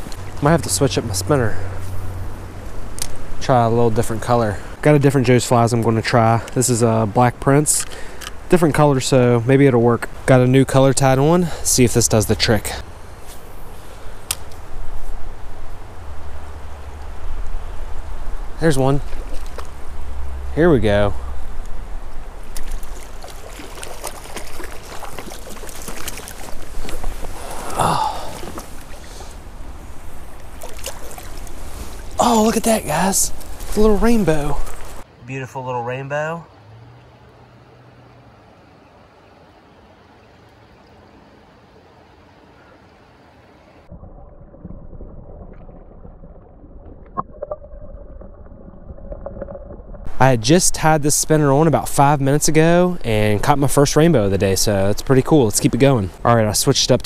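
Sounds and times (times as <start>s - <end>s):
small splashes and clicks: 0.0s - 0.5s, 2.9s - 3.2s, 19.0s - 19.8s, 22.4s - 27.5s, 30.2s - 32.2s
creek water running: 0.0s - 57.0s
muffled underwater water churn: 21.2s - 32.2s, 43.9s - 50.2s
short breathy vocal sound: 27.4s - 28.5s.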